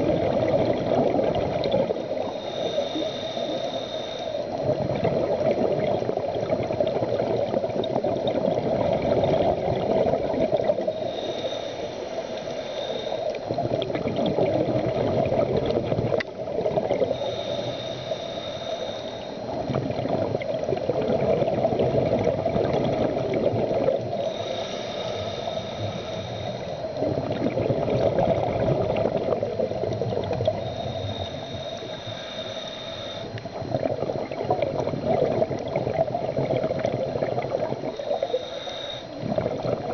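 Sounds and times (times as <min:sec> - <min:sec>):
bubbling exhalations: 0:00.0 - 0:02.3, 0:04.6 - 0:11.1, 0:13.5 - 0:17.2, 0:19.6 - 0:24.6, 0:27.0 - 0:31.0, 0:33.5 - 0:38.3, 0:39.2 - 0:39.9
diver breathing through regulator: 0:02.0 - 0:04.8, 0:10.9 - 0:13.5, 0:17.0 - 0:19.6, 0:24.0 - 0:27.4, 0:30.2 - 0:33.8, 0:36.8 - 0:39.9.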